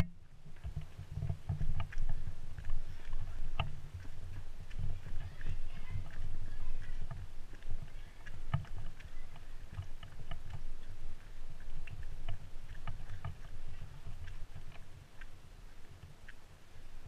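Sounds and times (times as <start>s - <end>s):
footsteps on wooden boardwalk: 0.0s - 17.0s.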